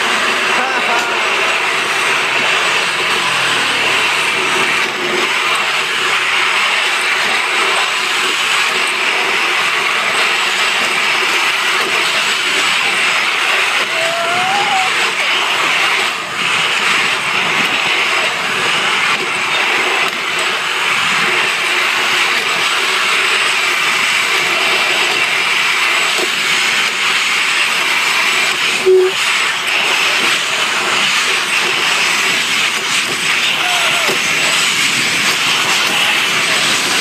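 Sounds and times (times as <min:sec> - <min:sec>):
zip line trolley rolling on rail: 0:00.0 - 0:37.0
brief tone: 0:28.8 - 0:29.2.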